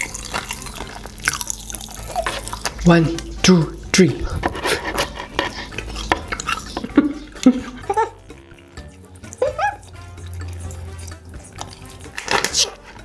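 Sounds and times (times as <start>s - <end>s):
lip smacks: 9.2s - 12.5s.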